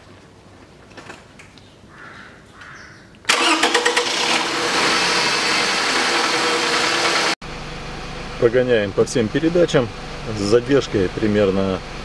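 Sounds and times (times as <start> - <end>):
starter motor cranking: 3.3 - 7.4
car engine idling: 3.3 - 12.0.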